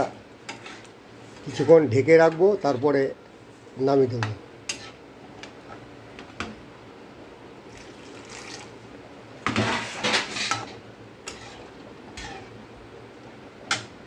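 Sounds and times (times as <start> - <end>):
metal ladle scraping a pan: 0.5 - 1.9, 4.7 - 5.0, 9.5 - 12.6.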